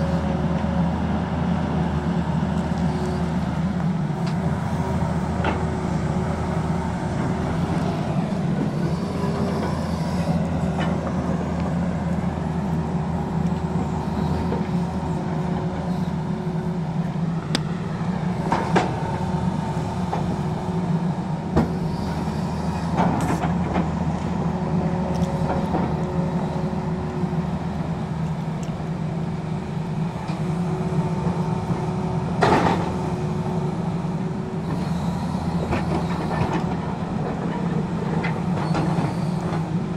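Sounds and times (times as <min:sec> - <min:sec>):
excavator engine and hydraulics: 0:00.0 - 0:39.9
faint hydraulic tone: 0:07.5 - 0:11.2, 0:13.7 - 0:16.8, 0:21.7 - 0:23.0, 0:34.6 - 0:36.5.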